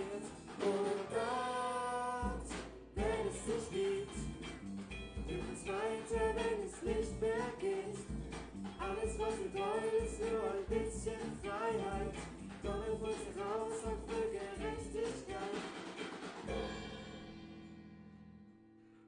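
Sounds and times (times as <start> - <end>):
drum kit: 0.0 - 1.6, 2.2 - 17.8
person singing: 0.0 - 4.4, 5.2 - 8.0, 8.8 - 16.0
bass guitar: 0.0 - 15.8, 16.4 - 19.0.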